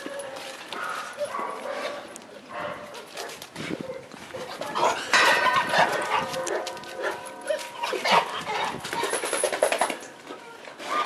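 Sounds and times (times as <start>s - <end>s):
dogs whining and yipping: 5.2s - 9.3s.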